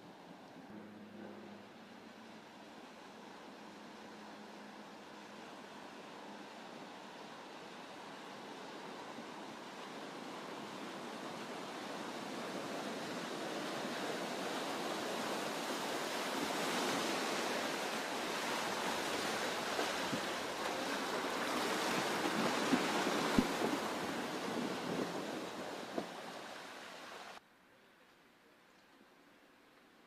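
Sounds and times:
muddy water splashing and rushing: 0:01.7 - 0:27.4.

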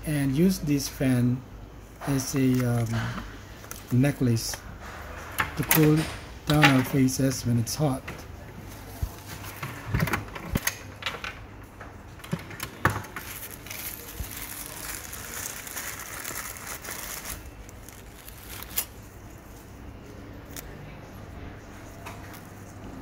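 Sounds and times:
wrapper rustling: 0:13.1 - 0:19.6.

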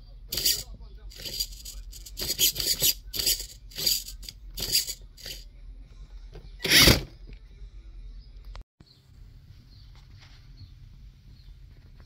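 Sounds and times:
servo whirring in raspy bursts: 0:00.3 - 0:05.4, 0:06.6 - 0:07.1.

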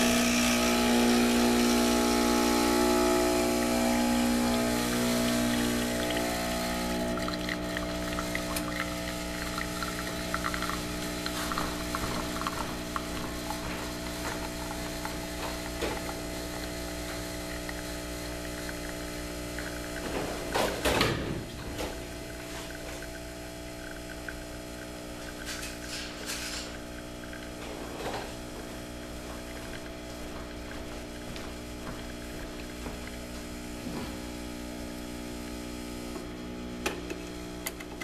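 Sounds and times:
espresso machine pump humming: 0:00.0 - 0:38.0.

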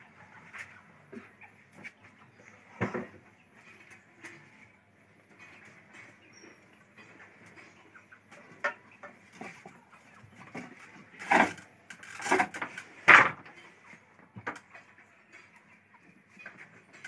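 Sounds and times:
loom clicks and rattles: 0:10.6 - 0:13.5.

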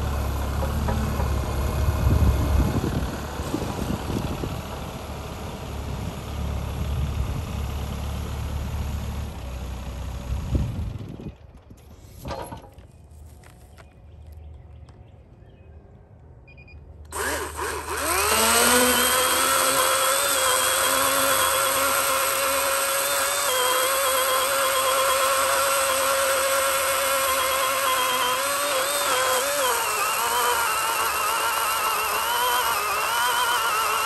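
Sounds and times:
electric chainsaw whining: 0:17.0 - 0:34.0
chainsaw cutting log: 0:17.1 - 0:34.0.

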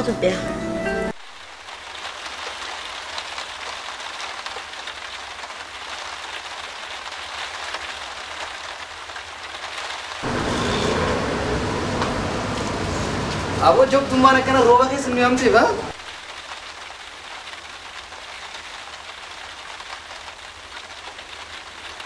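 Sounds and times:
rain on hard ground: 0:00.0 - 0:22.0
loud full noise: 0:10.2 - 0:16.0.

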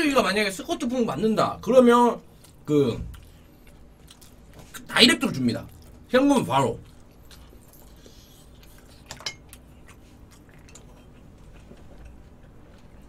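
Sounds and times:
faint room hum: 0:00.0 - 0:13.0
chopsticks clinking against dishes: 0:09.1 - 0:09.6.

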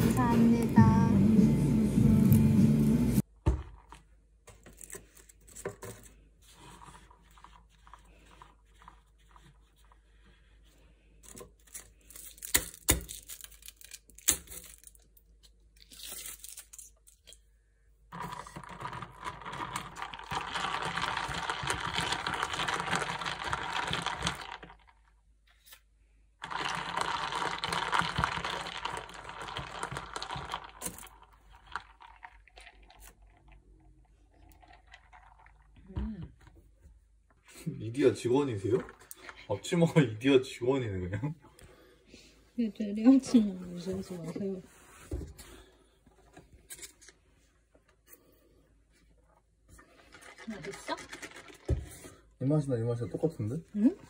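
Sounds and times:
paper tearing and crinkling: 0:15.8 - 0:17.1.

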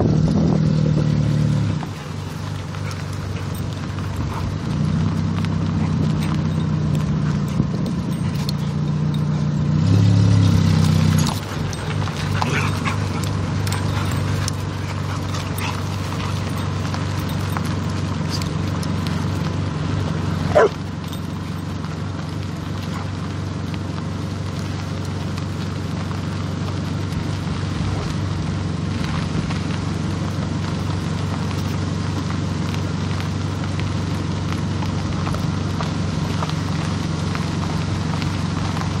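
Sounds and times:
car engine hum: 0:00.0 - 0:39.0
tyres rustling on dirt: 0:00.0 - 0:39.0
dog yelping: 0:11.4 - 0:16.5, 0:20.5 - 0:20.8.

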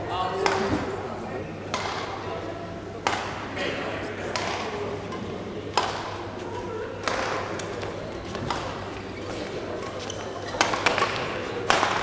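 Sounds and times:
badminton racket hitting shuttlecock: 0:05.7 - 0:06.2, 0:10.6 - 0:12.0.

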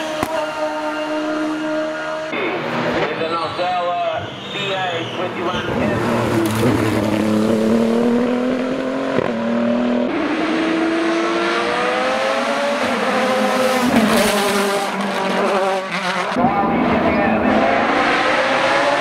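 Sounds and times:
race car engine accelerating: 0:05.3 - 0:19.0.

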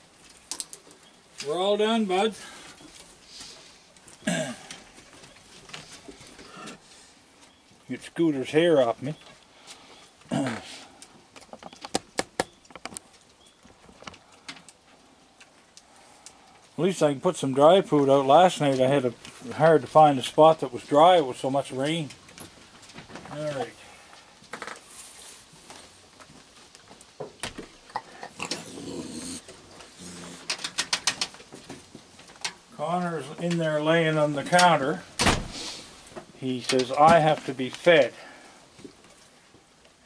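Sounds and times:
raccoons growling and chittering: 0:27.9 - 0:31.2.

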